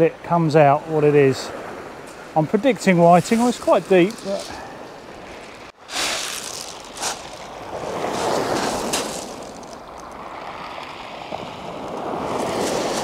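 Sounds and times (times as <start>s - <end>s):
surf washing onto beach: 0.2s - 13.0s
wind on microphone: 4.6s - 13.0s.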